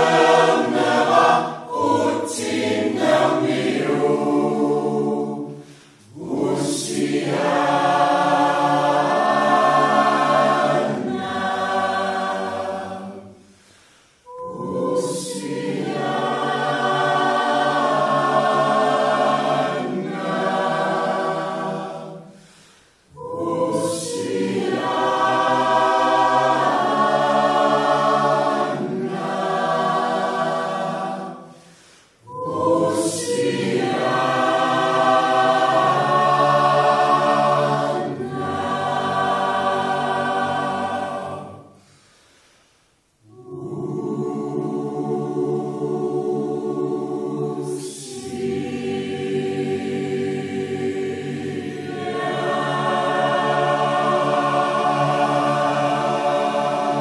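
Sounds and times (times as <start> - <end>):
mixed choir singing a cappella: 0.0 - 57.0.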